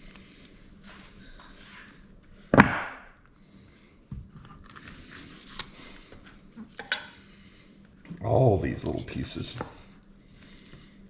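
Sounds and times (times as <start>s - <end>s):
knife scraping meat: 4.4s - 5.8s.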